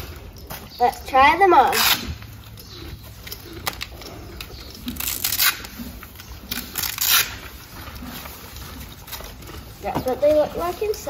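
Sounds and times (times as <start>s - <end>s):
hook-and-loop straps ripping: 1.7s - 2.3s, 3.2s - 8.1s.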